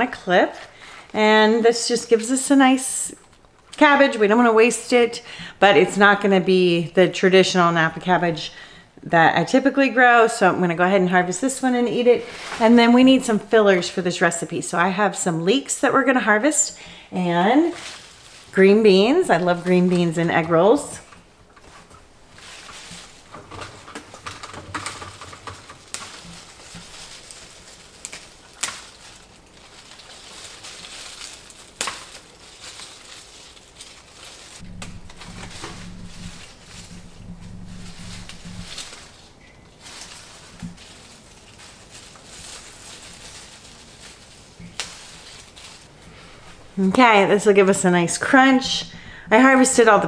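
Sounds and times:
leaves rustling: 10.3 - 50.0
plant stems snapping: 22.6 - 45.9
low hum: 34.6 - 50.0.

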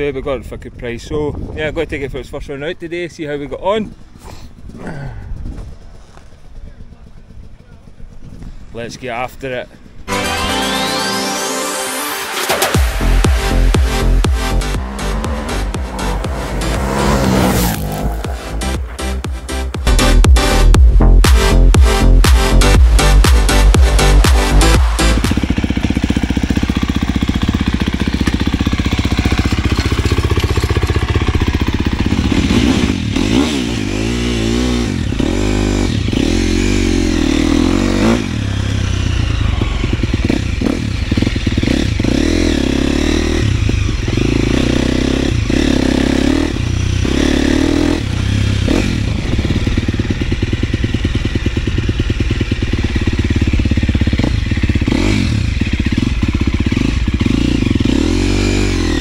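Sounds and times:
motorcycle engine revving: 12.4 - 59.0.

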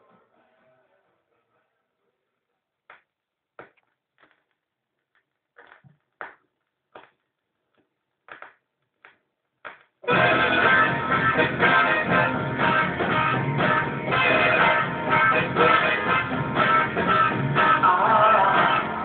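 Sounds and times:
vinyl record pops: 2.8 - 10.1.

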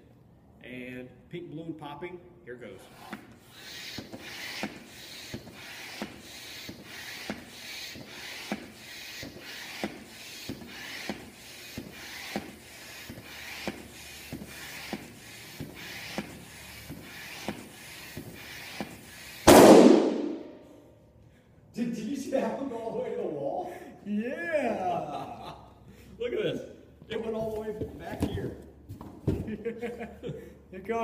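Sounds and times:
floor pump strokes: 2.8 - 19.7, 27.0 - 30.0.

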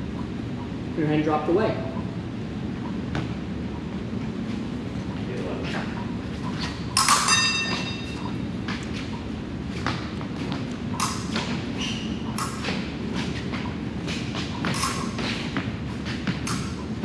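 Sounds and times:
steady low hum: 0.0 - 17.0
fencing blades clicking and ringing: 7.0 - 8.3, 11.0 - 11.4, 14.6 - 15.2.

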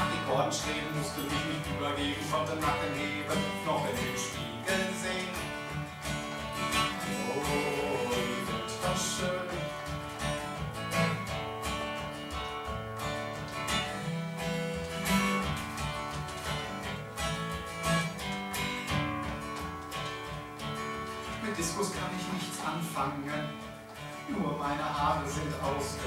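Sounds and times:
acoustic guitar strummed: 0.0 - 26.0.

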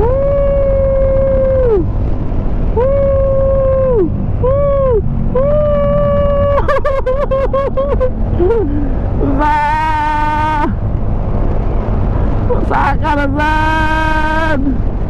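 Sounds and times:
person whooping: 0.0 - 1.9, 2.8 - 10.8
motorcycle engine rumble: 0.0 - 15.0
wind: 0.0 - 15.0.

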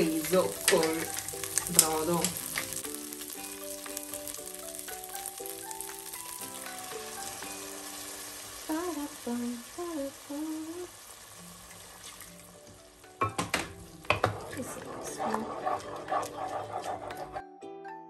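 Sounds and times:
rice sizzling in a pot: 0.0 - 17.3
background music melody: 0.0 - 18.0
person humming: 8.7 - 11.0
broth being poured: 11.1 - 13.1.

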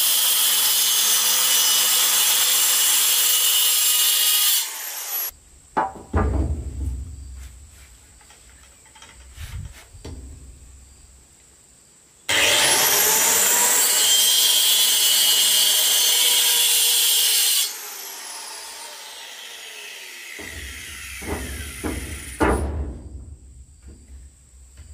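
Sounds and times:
circular saw cutting wood: 0.0 - 5.3, 12.3 - 22.4
wooden boards knocking: 5.8 - 7.5.

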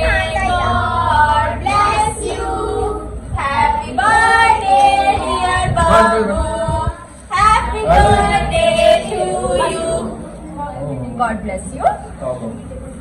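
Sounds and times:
child singing: 0.0 - 10.2.

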